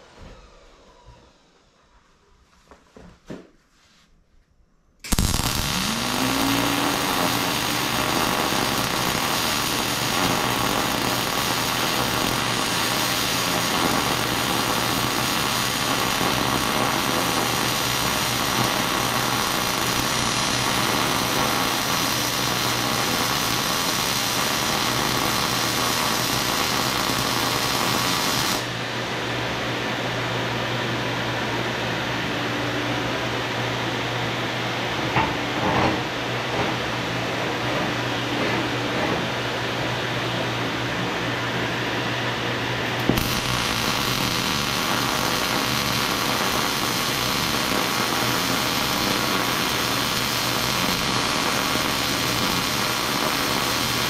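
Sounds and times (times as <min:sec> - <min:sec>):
extractor fan whirring: 0:05.0 - 0:15.9
welding arc buzzing: 0:05.0 - 0:28.8, 0:43.0 - 0:54.0.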